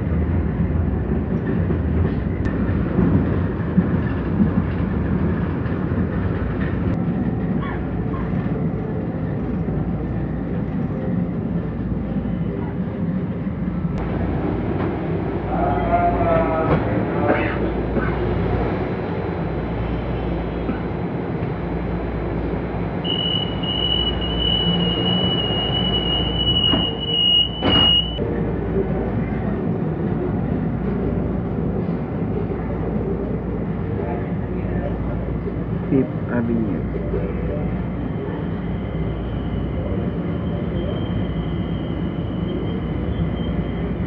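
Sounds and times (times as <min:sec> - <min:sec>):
rail car rumbling: 0:00.0 - 0:44.0
high warning tone: 0:23.0 - 0:28.2
train doors knocking shut: 0:26.4 - 0:28.2.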